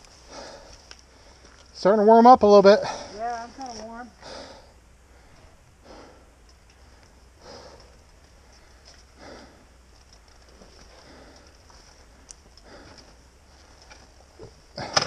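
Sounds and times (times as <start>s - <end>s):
person breathing hard: 0.2s - 1.6s, 4.2s - 9.8s, 10.8s - 13.8s.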